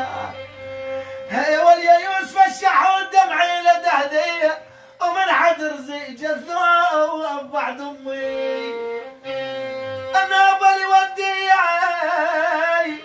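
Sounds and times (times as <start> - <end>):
man singing wavering long notes: 0.0 - 0.7.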